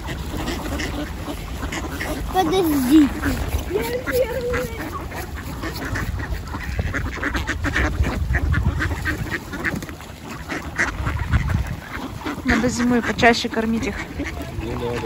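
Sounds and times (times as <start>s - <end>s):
flock of ducks quacking: 0.0s - 15.0s.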